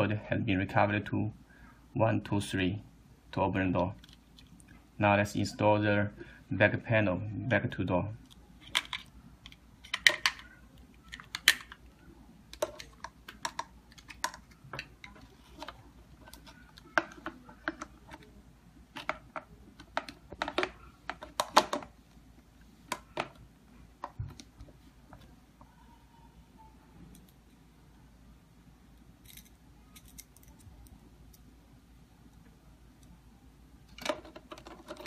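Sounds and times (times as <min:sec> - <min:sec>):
plastic lock parts clicking and knocking: 0:08.6 - 0:11.9, 0:12.5 - 0:18.3, 0:18.9 - 0:22.0, 0:33.9 - 0:35.0.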